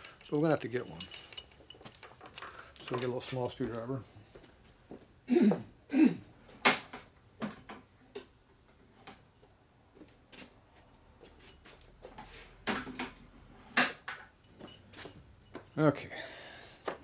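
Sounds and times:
metal hand tools clinking: 0.0 - 3.9.

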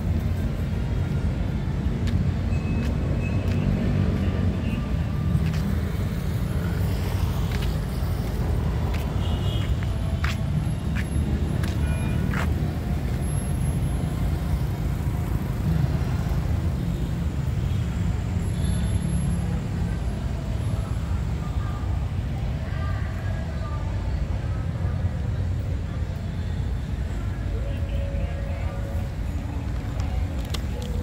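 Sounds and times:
road traffic rumble: 0.0 - 31.0.

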